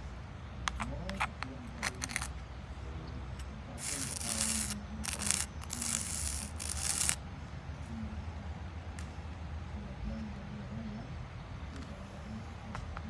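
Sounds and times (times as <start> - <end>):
plastic spoon scratching sand: 0.7 - 2.3, 3.8 - 7.2.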